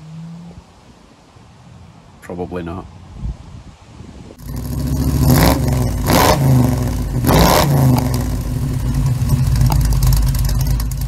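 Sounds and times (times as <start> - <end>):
engine revving over idle: 4.4 - 11.0.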